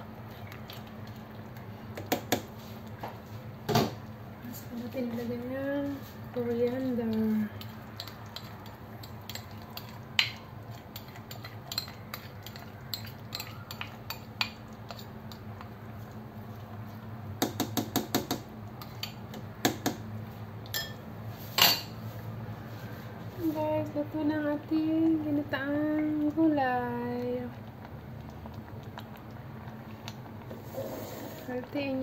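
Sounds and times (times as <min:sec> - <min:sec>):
spoon scraping and tapping a pot: 0:07.6 - 0:15.4
low steady hum: 0:18.4 - 0:32.0.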